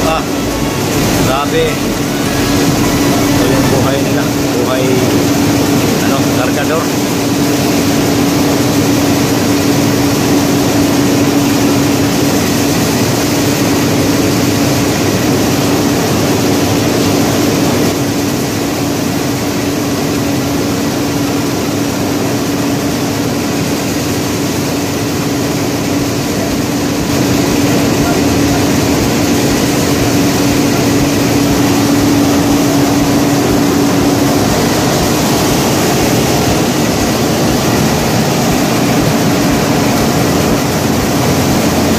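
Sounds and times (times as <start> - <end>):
heavy engine humming: 0.0 - 12.3, 24.8 - 41.9
broad rushing noise: 0.0 - 41.9.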